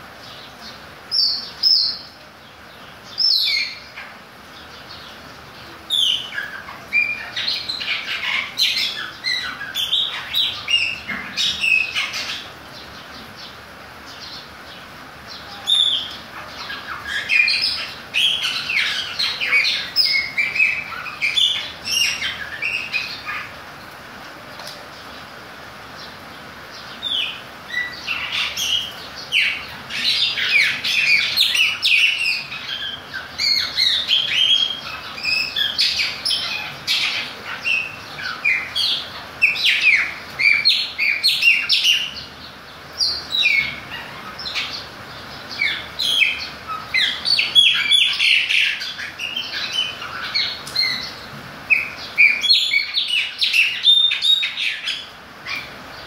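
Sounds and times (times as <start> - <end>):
steady background hiss: 0.0 - 56.0
blackbird singing whistles and chirps: 45.6 - 55.7.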